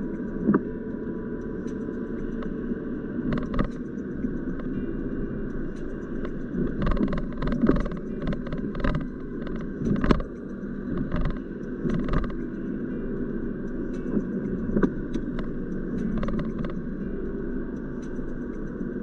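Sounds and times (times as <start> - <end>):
road and engine rumble: 0.0 - 19.0
sharp ticks and taps: 0.0 - 19.0.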